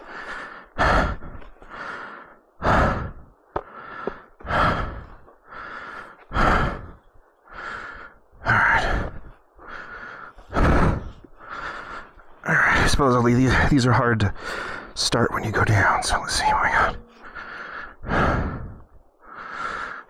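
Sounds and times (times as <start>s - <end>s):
man breathing heavily: 0.0s - 20.0s.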